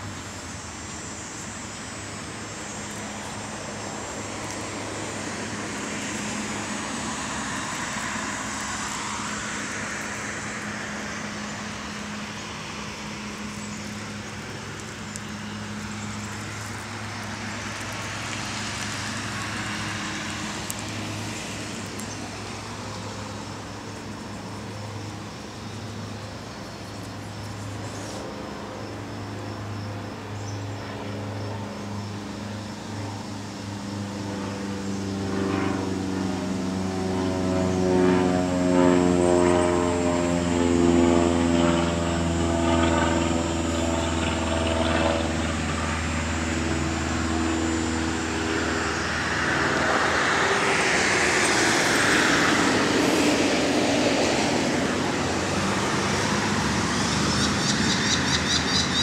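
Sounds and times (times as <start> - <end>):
broad rushing noise: 0.0 - 59.0
large engine droning: 0.0 - 59.0.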